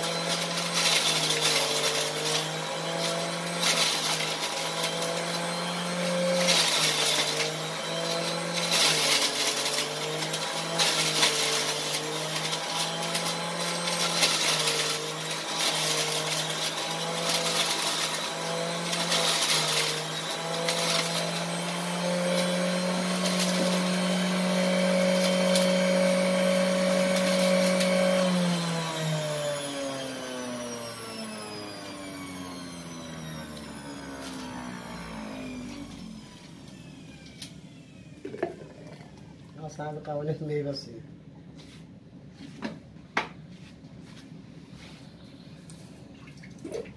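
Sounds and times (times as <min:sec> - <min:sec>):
grapes shredding and spraying: 0:00.0 - 0:28.5
juicer motor hum: 0:00.0 - 0:39.7.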